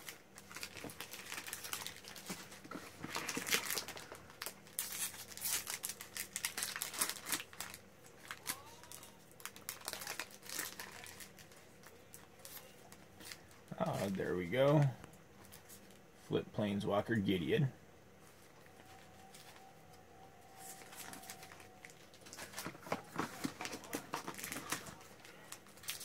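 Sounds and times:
wrapper being torn open: 0.0 - 12.7, 20.6 - 26.0
foil wrapper crinkling: 0.0 - 16.1, 20.5 - 26.0.

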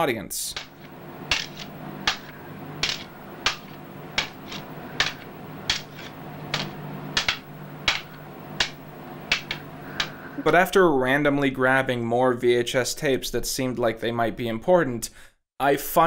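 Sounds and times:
wooden sticks clacking: 0.5 - 10.5
steady low hum: 0.5 - 10.6.

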